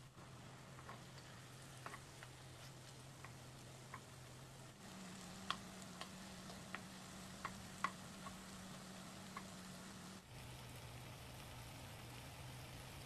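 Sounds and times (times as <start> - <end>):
chicken sizzling in a wok: 0.0 - 13.0
steady low hum: 0.0 - 13.0
wooden spatula stirring: 0.2 - 9.6.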